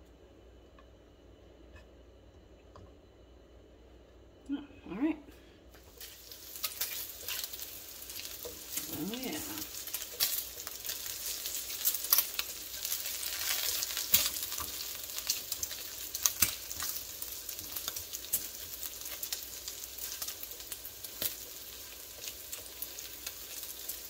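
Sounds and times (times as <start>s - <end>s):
bacon sizzling and popping: 5.7s - 24.0s.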